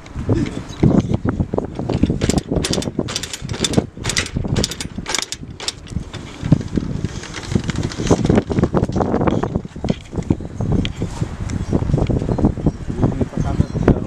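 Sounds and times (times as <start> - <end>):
wind buffeting microphone: 0.0 - 14.0
metallic clicks and rattles of crank: 1.8 - 10.4.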